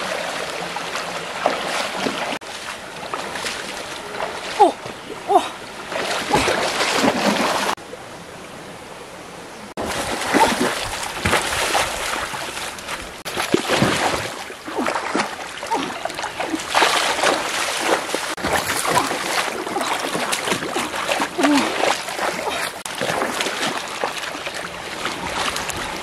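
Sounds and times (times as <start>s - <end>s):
running stream water: 0.0s - 26.0s
hands splashing in stream water: 9.8s - 26.0s.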